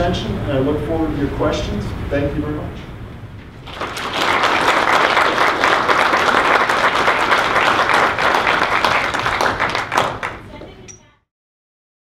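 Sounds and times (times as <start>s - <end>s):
audience applauding: 3.6s - 10.7s.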